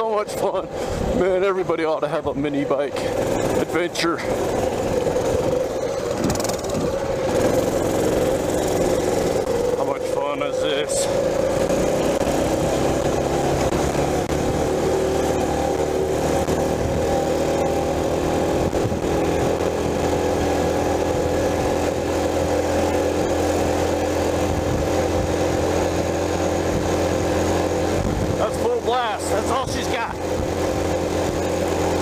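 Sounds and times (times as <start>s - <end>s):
small engine at high revs: 2.7s - 32.0s.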